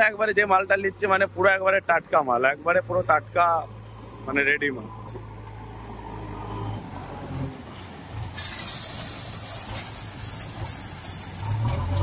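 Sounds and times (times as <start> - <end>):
truck and loader engines running: 0.0 - 12.0
loud steady hiss: 8.2 - 11.7.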